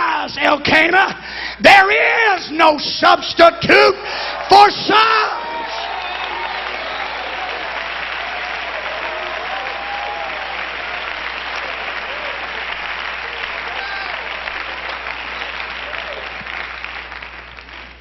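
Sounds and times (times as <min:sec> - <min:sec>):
congregation applauding: 0:04.1 - 0:18.0.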